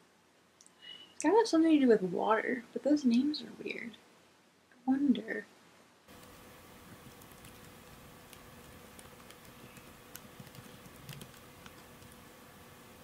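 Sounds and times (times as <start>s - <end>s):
low steady hum: 0.0s - 13.0s
laptop keyboard typing: 6.1s - 12.4s.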